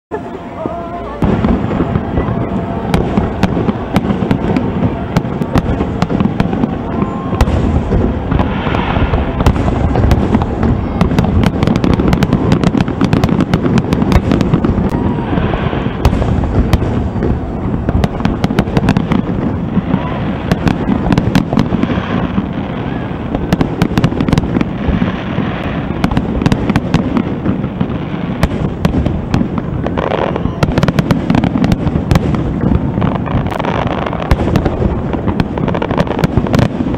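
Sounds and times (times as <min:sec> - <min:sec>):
fireworks booming and crackling: 0:00.1 - 0:36.9.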